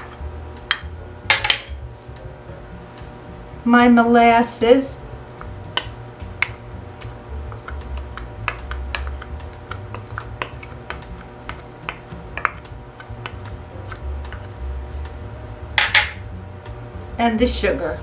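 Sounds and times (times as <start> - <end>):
quiet background music: 0.0 - 18.0.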